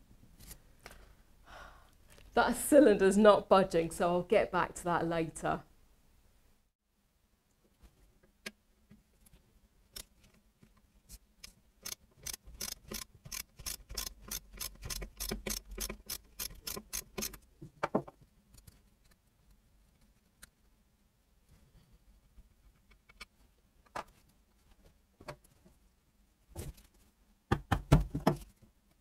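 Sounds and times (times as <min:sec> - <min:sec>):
ratchet wrench clicking: 0:11.8 - 0:17.4.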